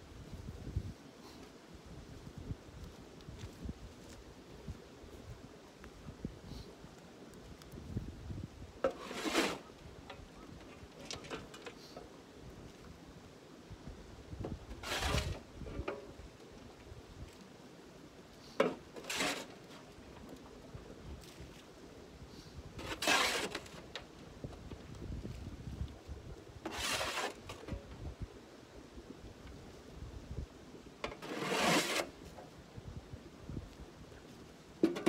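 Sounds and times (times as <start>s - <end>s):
rustling scrapes: 8.8s - 9.8s, 14.7s - 16.0s, 18.4s - 20.0s, 22.3s - 23.9s, 26.6s - 27.9s, 31.0s - 32.4s.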